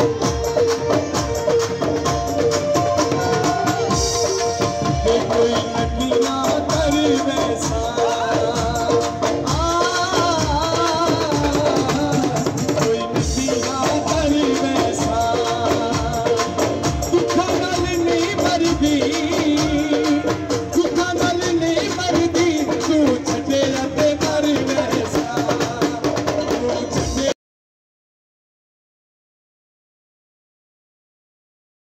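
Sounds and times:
rattling percussion: 0.0 - 27.4
steady drum beat: 0.0 - 27.4
person singing folk song: 3.0 - 27.4.

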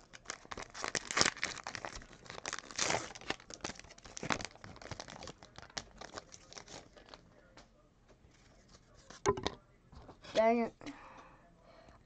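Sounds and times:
card wrappers crinkling: 0.0 - 7.2.

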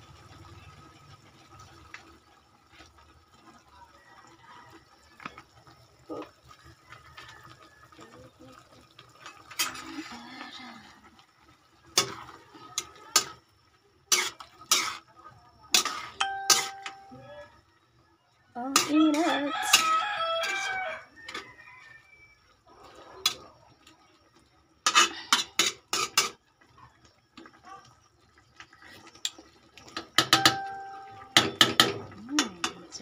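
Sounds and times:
wok simmering: 0.0 - 33.0
metal spatula scraping wok: 9.2 - 10.5, 11.8 - 13.4, 14.1 - 15.1, 15.7 - 17.1, 18.7 - 21.5, 24.8 - 26.4.

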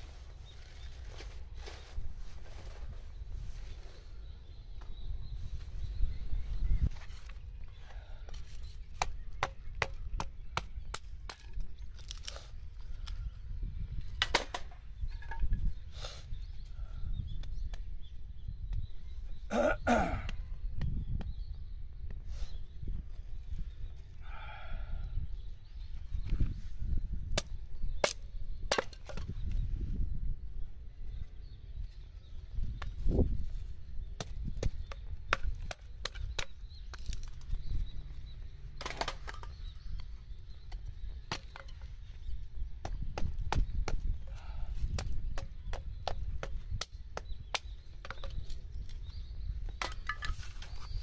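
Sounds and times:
hatchet splitting wood: 8.8 - 12.3, 42.8 - 44.2.

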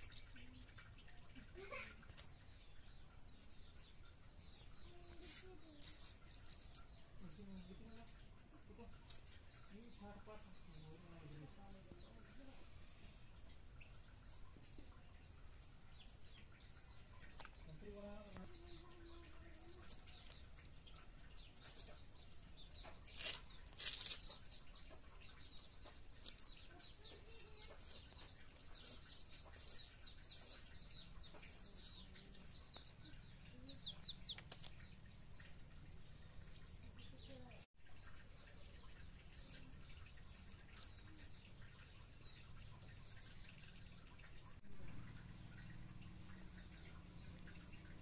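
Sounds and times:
chicks peeping: 24.3 - 37.5.

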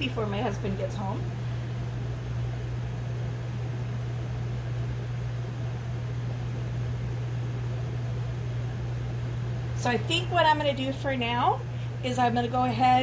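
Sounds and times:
multicooker fan hum and whoosh: 0.0 - 13.0.

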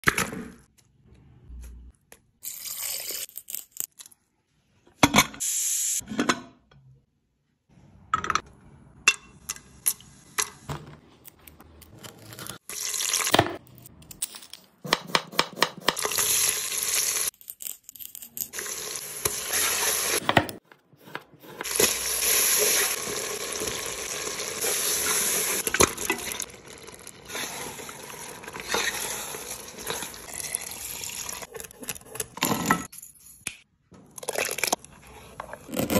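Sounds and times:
food frying in a pan: 21.8 - 31.5.

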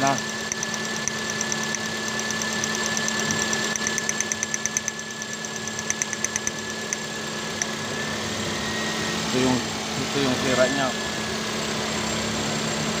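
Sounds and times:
ignition coil sparking rapid ticking: 0.0 - 7.0.

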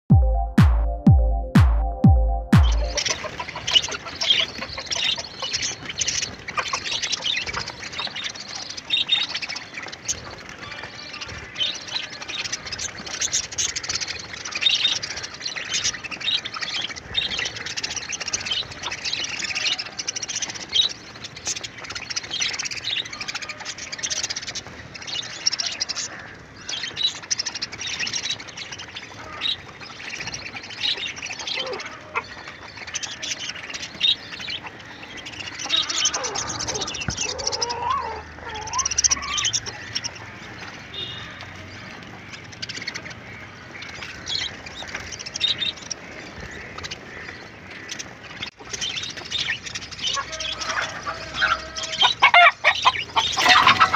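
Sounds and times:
budgerigars chirping and squawking: 2.6 - 53.9.

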